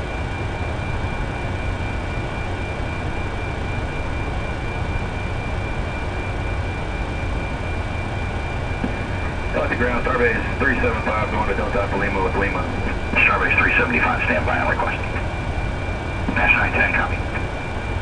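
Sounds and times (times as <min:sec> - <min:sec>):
high whine: 0:00.0 - 0:18.0
low rumble: 0:08.6 - 0:18.0
air conditioning rush: 0:08.7 - 0:18.0.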